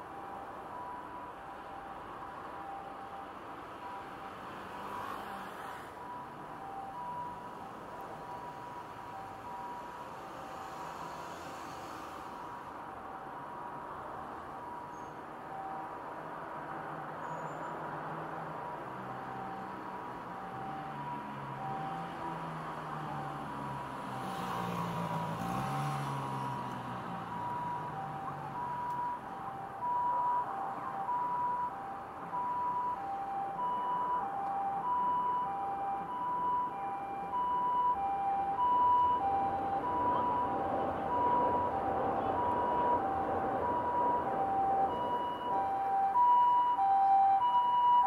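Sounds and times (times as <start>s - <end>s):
two-tone ambulance siren: 0.0s - 11.6s, 12.4s - 17.7s, 18.8s - 48.0s
road traffic: 0.0s - 48.0s
vehicle passing: 20.3s - 28.8s.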